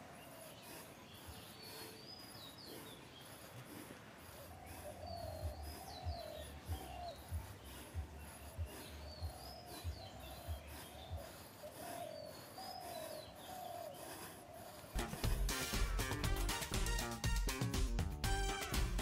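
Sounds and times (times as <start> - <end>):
doves cooing: 0.0 - 17.1
bird chirping: 0.0 - 17.7
soft low thumps: 5.4 - 11.3.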